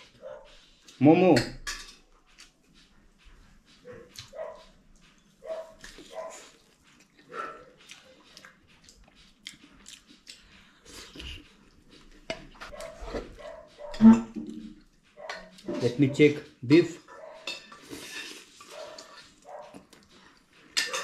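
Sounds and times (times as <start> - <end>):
dog chewing food: 2.1 - 15.9, 18.7 - 20.7
dog yelping: 3.9 - 4.7, 5.4 - 6.5, 12.7 - 14.3, 15.2 - 16.3, 17.1 - 17.6, 18.7 - 19.8.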